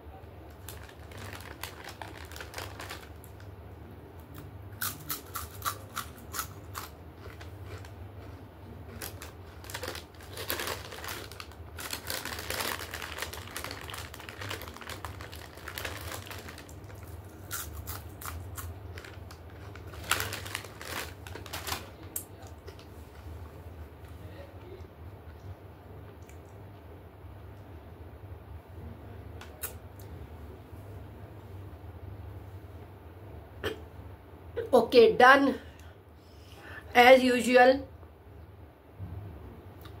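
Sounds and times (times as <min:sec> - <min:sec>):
steady low hum: 0:00.0 - 0:40.0
crunching and chewing stone: 0:17.5 - 0:19.1.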